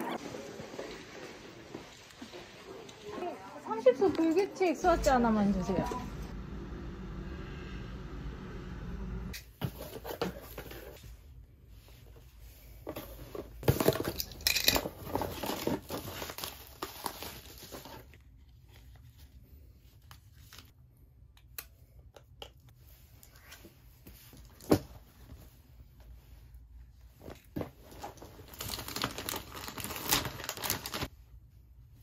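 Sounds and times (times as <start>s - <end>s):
low street hum: 4.1s - 9.4s
bubble wrap crinkling and tearing: 15.1s - 18.2s, 27.9s - 31.1s.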